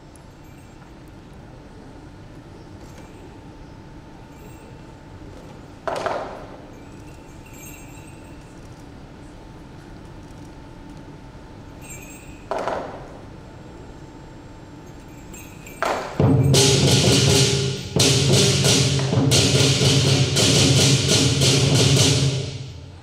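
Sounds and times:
drum gong and cymbals beating: 15.2 - 23.0.

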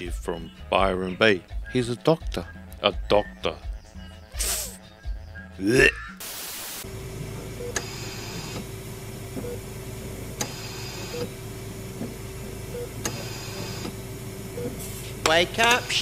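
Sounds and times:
tv static hiss: 6.2 - 8.6, 10.1 - 14.5
steady electrical hum: 6.7 - 16.0
patient monitor beeps: 7.4 - 8.6, 9.4 - 9.6, 10.4 - 11.3, 12.7 - 13.9, 14.6 - 14.8
machine clicking and hissing: 7.6 - 8.7, 10.4 - 11.3, 13.0 - 14.0.

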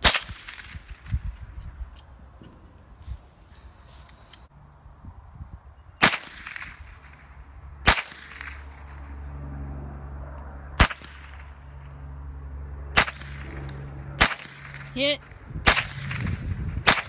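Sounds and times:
rifle shots: 0.0 - 1.2, 6.0 - 9.0, 10.8 - 11.6, 12.9 - 17.0.

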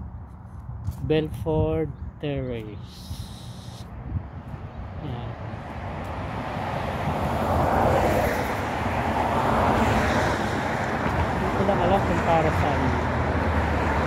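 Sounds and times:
vehicle passing on road: 3.0 - 14.0.

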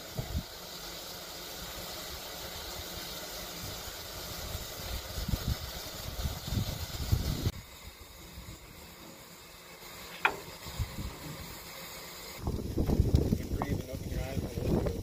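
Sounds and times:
steam engine smokestack hiss: 0.0 - 15.0
wind rumble on microphone: 4.6 - 7.6, 12.4 - 15.0.

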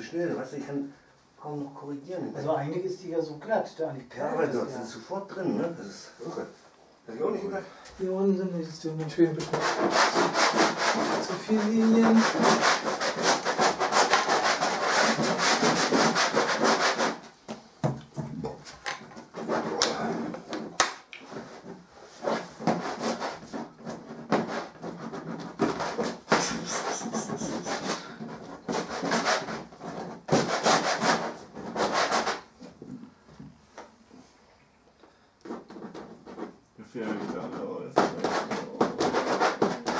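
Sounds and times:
crayons scraping on paper: 9.4 - 17.4, 18.5 - 32.8, 35.4 - 39.9.

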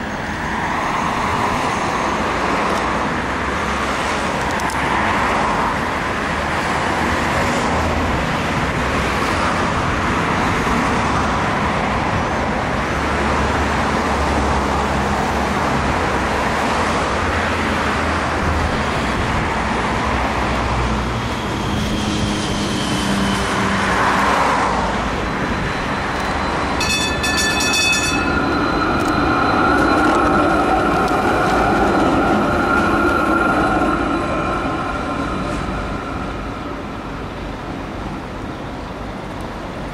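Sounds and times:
street traffic noise: 0.0 - 39.9
tram electric drive whine: 0.0 - 39.9
tram bell ringing: 24.1 - 37.7.

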